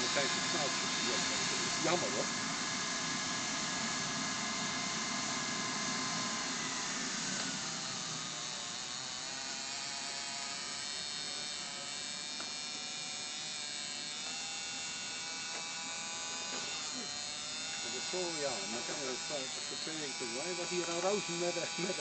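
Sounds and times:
gas turbine engine whine: 0.0s - 11.4s, 15.5s - 22.0s.

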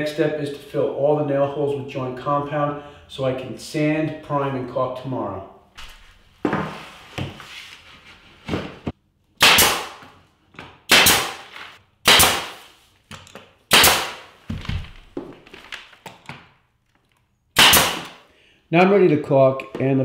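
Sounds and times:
nail gun shots: 9.4s - 10.0s, 10.9s - 12.7s, 13.7s - 14.3s, 17.6s - 18.2s.

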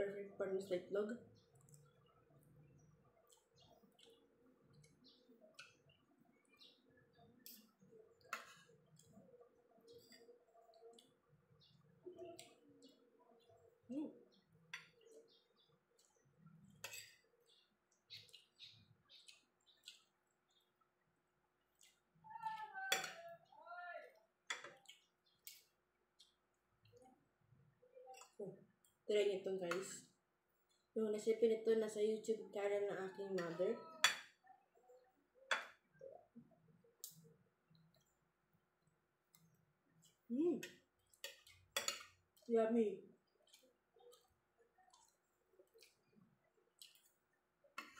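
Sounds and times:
soft chewing: 1.2s - 31.4s, 33.0s - 47.9s
squeaky cutlery scrapes: 16.8s - 17.2s
cutlery clicking on a plate: 22.9s - 23.2s, 41.2s - 42.2s.

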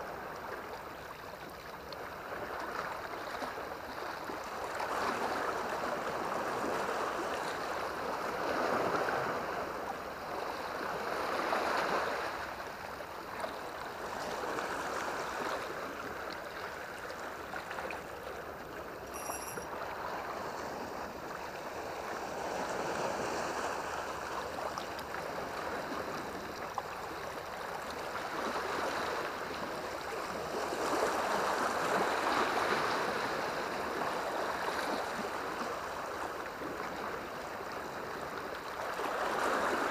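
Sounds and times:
sea water lapping on shore: 0.0s - 19.1s, 19.7s - 39.9s
high chirp: 19.1s - 19.7s.

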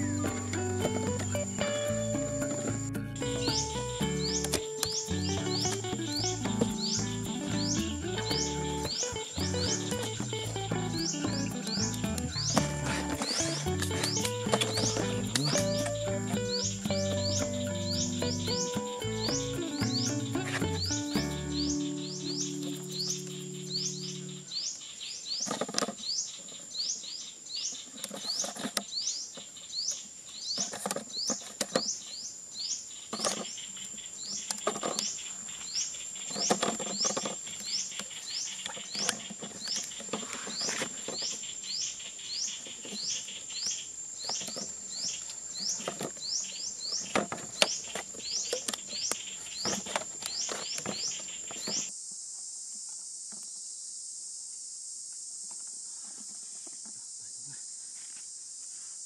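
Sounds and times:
high insect hiss: 0.0s - 30.5s, 31.2s - 59.0s
insect chirping: 0.0s - 59.0s.

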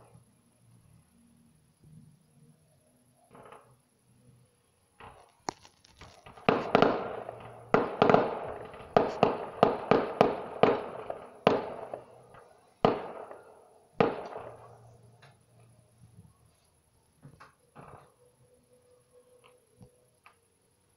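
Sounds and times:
distant fireworks bangs: 3.3s - 3.8s, 5.0s - 15.4s, 17.3s - 18.2s
weak fireworks pops: 3.3s - 3.8s, 5.0s - 16.4s, 17.2s - 18.2s.

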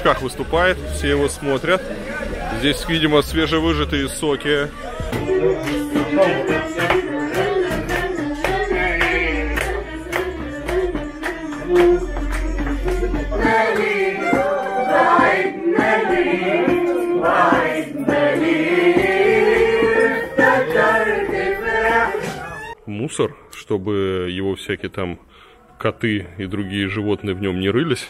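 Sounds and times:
people singing: 3.5s - 22.8s.

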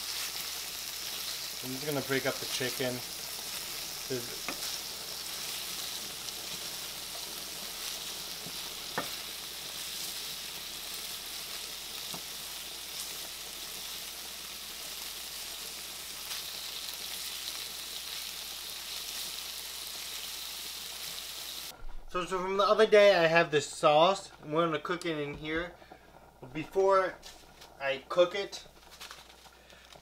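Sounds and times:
chicken sizzling in oil: 0.0s - 21.8s.

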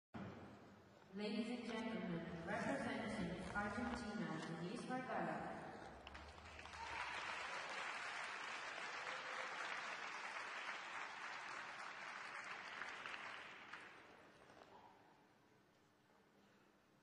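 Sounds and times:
audience applauding: 5.8s - 14.5s.

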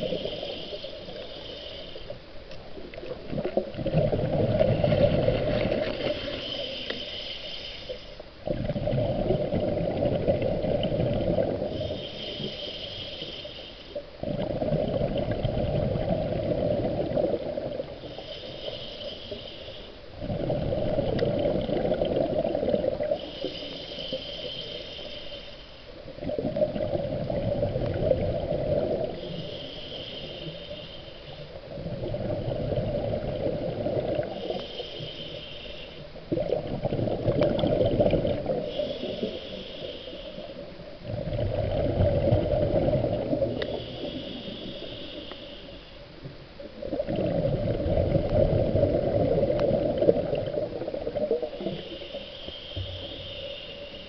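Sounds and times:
regulator inhale hiss: 0.0s - 2.7s, 5.3s - 8.5s, 10.8s - 14.3s, 16.4s - 26.1s, 28.1s - 32.0s, 33.3s - 36.6s, 37.4s - 41.1s, 42.7s - 46.3s, 50.0s - 54.0s
exhaled bubbles rushing: 3.2s - 6.4s, 8.4s - 11.8s, 14.2s - 18.0s, 20.2s - 23.2s, 26.2s - 29.2s, 31.7s - 34.6s, 36.3s - 39.2s, 41.0s - 43.6s, 46.8s - 51.8s.

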